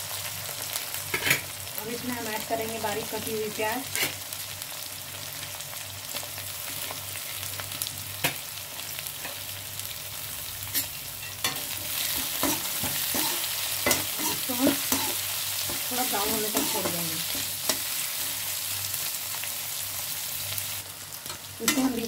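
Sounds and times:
onions sizzling in hot oil: 0:00.0 - 0:22.0
spatula scraping metal pan: 0:10.8 - 0:18.0.

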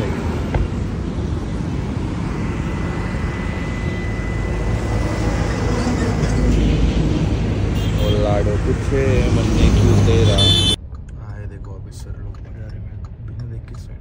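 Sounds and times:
faint high whine: 0:00.0 - 0:06.4
highway traffic rumble: 0:00.0 - 0:14.0.

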